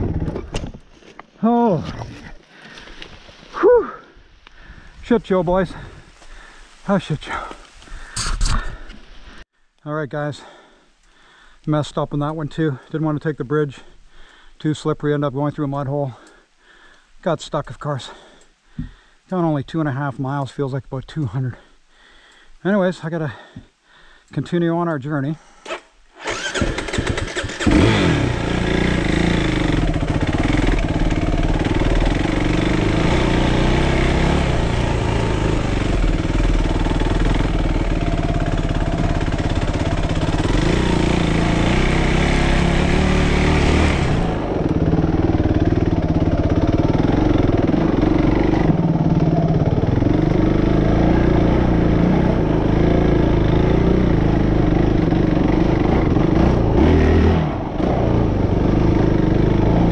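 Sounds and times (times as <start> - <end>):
dirt bike engine revving: 25.7 - 59.9.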